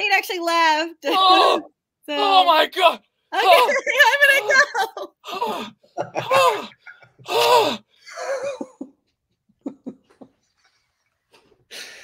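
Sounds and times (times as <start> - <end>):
person vocal exclamation: 1.0 - 7.8.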